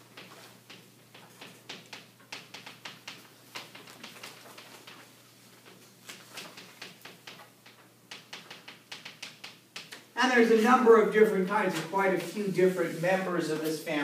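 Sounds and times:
chalk tapping on chalkboard: 0.1 - 5.0, 5.7 - 10.0.

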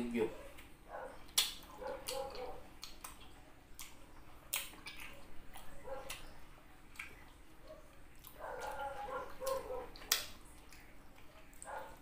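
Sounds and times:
wet mouth clicks and lip smacks: 1.3 - 6.3, 6.9 - 7.3, 9.4 - 11.7.

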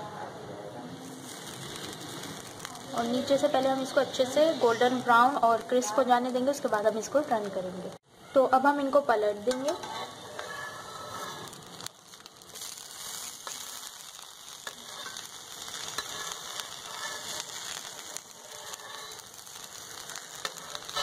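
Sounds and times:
oil sizzling in pan: 1.0 - 8.0, 8.6 - 21.0.

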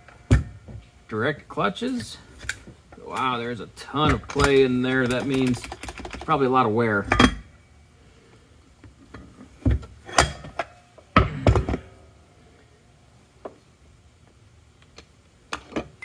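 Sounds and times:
metal parts knocking and clunking: 4.0 - 6.4.

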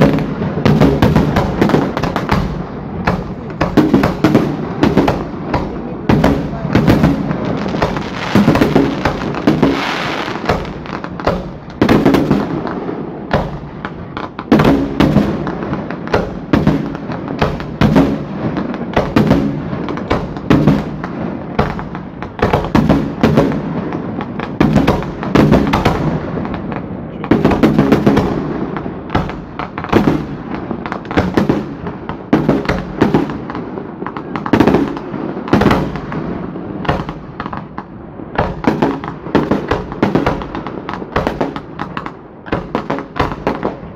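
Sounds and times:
fireworks bursting and crackling: 0.0 - 43.9.

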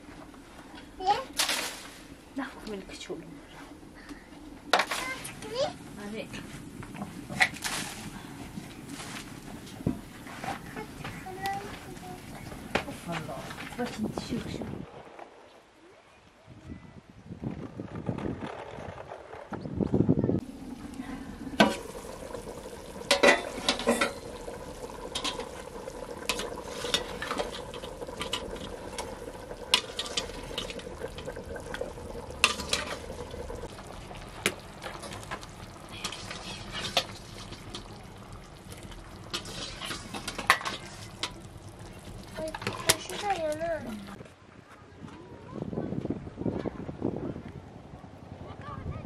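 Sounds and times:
low sizzle: 0.0 - 15.0, 20.4 - 44.2
metal ladle clinking on pots: 23.1 - 24.3.

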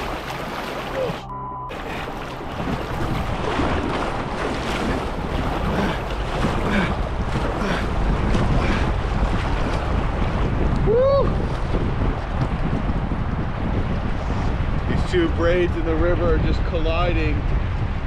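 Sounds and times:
river current rushing: 0.0 - 11.5
wind buffeting microphone: 0.0 - 18.0
short pitched sound: 0.9 - 1.9.

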